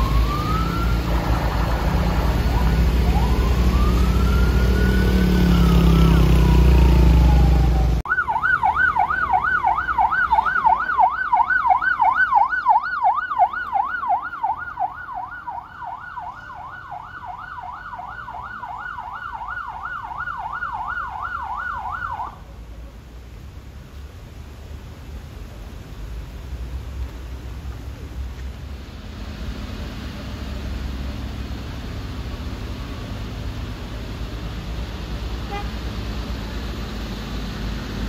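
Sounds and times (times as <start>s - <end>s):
police siren: 0.0s - 22.4s.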